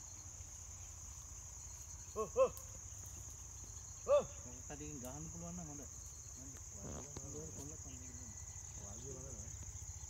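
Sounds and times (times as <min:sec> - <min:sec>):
high-pitched insect drone: 0:00.0 - 0:10.0
short calls: 0:01.9 - 0:05.0.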